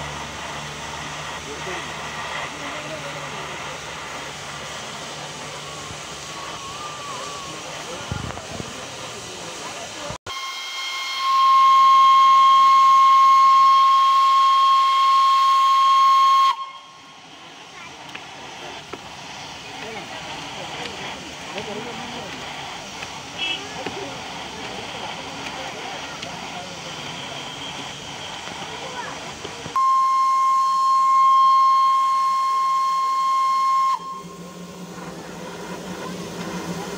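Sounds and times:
hiss of escaping steam: 0:00.0 - 0:36.9
steam whistle: 0:10.3 - 0:17.4, 0:23.4 - 0:23.7, 0:29.8 - 0:36.9.

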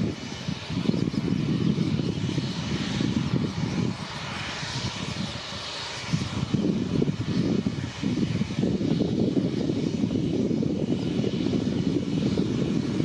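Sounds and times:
jet engines running: 0:00.0 - 0:13.0.

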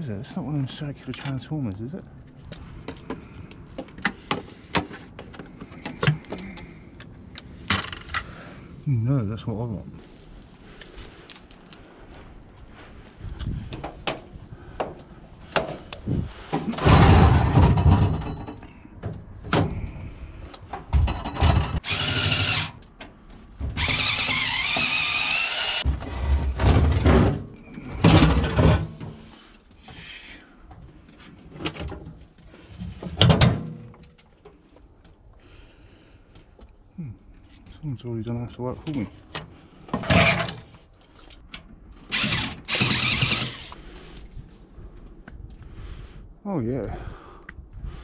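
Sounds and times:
scrap metal clunks and knocks: 0:13.6 - 0:21.8, 0:25.8 - 0:29.5, 0:31.5 - 0:34.6, 0:38.9 - 0:41.7.

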